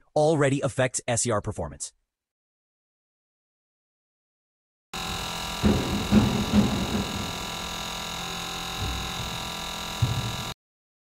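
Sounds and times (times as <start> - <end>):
dull low knocks: 5.0 - 10.5
dosing pump hum with tones: 5.0 - 10.6.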